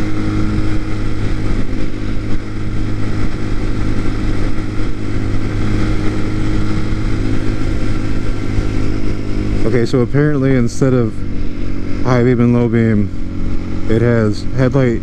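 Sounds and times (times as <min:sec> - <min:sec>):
motorcycle engine cruising: 0:00.0 - 0:15.0.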